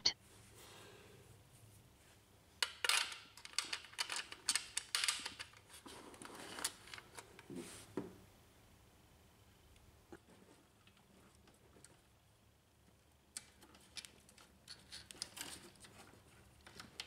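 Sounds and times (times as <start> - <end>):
metal clicking and scraping on plastic: 13.3 - 17.0.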